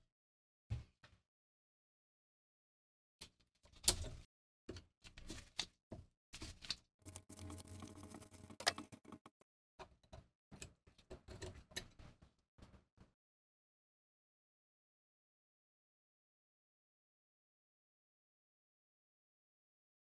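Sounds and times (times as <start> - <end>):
metal clicks and scrapes: 6.4 - 12.1
metal grinding scrape: 7.1 - 9.4.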